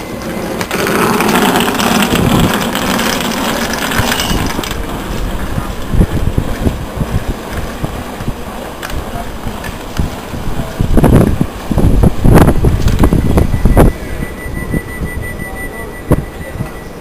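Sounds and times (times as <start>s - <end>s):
train running noise: 0.0s - 17.0s
wind on microphone: 0.3s - 17.0s.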